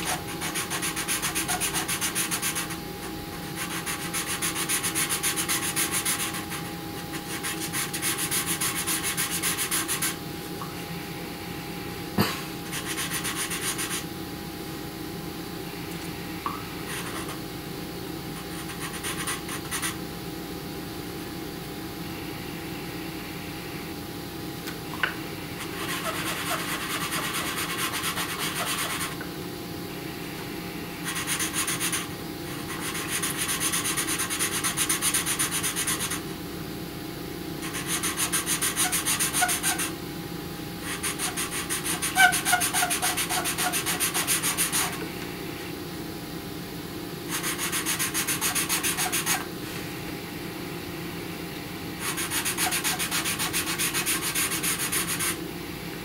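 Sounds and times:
pencil scratching on paper: 0.0 - 2.8, 3.6 - 6.6, 7.2 - 10.2, 12.7 - 14.0, 16.9 - 17.4, 18.4 - 20.0, 25.6 - 29.2, 31.0 - 36.2, 37.6 - 39.9, 40.8 - 45.0, 47.3 - 49.4, 52.0 - 55.4
faint steady hum: 0.0 - 56.0.

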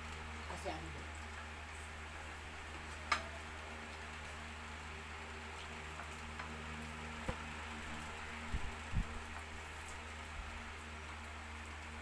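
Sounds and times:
steady hiss and low hum: 0.0 - 12.0.

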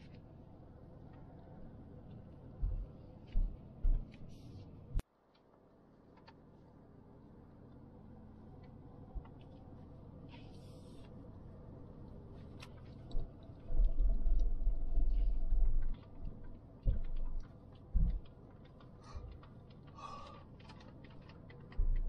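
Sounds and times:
light ticks and rattles: 12.0 - 22.0.

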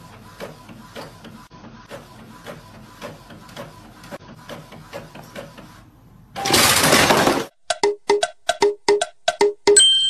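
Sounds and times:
inkjet printer clicking: 0.0 - 5.8.

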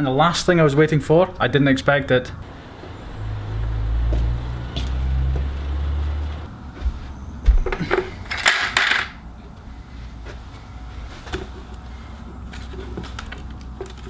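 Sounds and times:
truck engine idling: 2.4 - 7.4.

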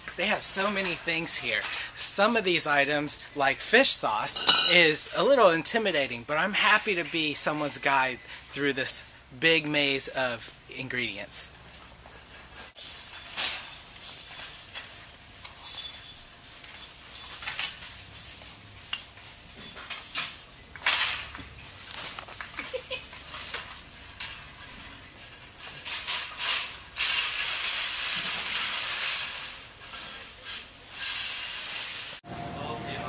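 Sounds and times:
wire shopping cart rattling: 12.8 - 31.9
loud rustling hiss: 25.8 - 32.2.

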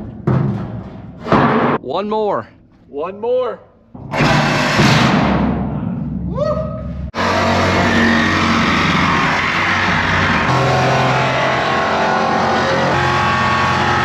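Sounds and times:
angle grinder cutting steel: 7.2 - 14.0.

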